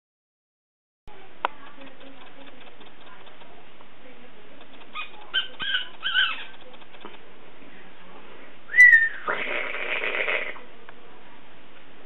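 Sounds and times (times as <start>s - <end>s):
cat hissing: 9.0s - 10.6s.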